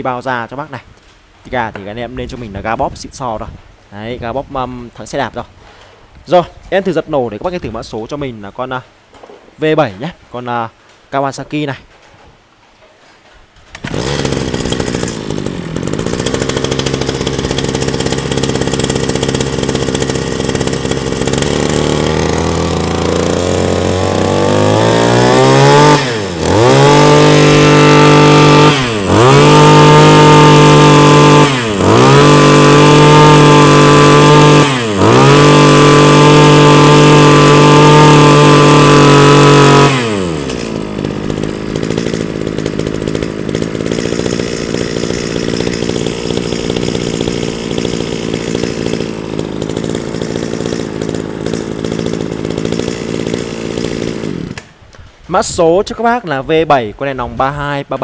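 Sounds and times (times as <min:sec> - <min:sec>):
pull start: 0:13.6 - 0:55.1
brush cutter engine revving: 0:13.7 - 0:55.1.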